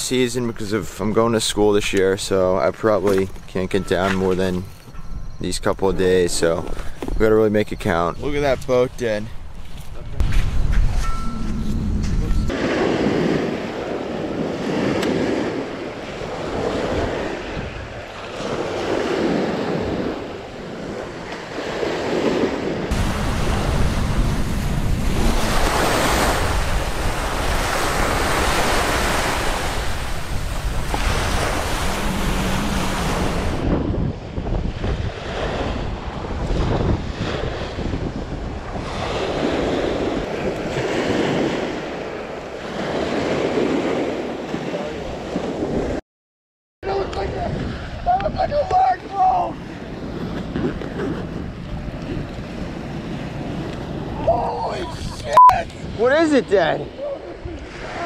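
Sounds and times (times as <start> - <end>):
wind buffeting microphone: 1.2 - 46.0, 46.8 - 58.0
small waves breaking on beach: 12.5 - 33.7, 34.8 - 46.0, 56.0 - 58.0.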